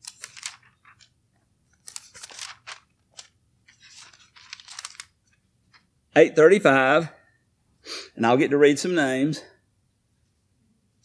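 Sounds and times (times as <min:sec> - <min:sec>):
thin pages rustling: 0:00.0 - 0:05.9.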